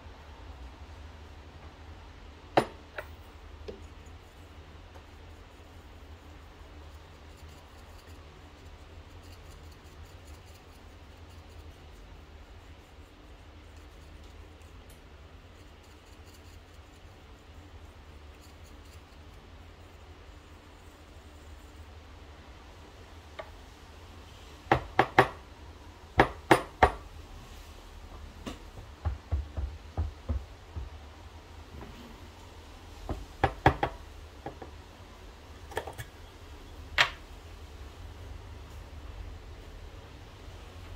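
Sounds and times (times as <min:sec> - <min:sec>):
tool scratching ground coffee: 0:03.7 - 0:22.0
soft knocks: 0:28.4 - 0:31.0.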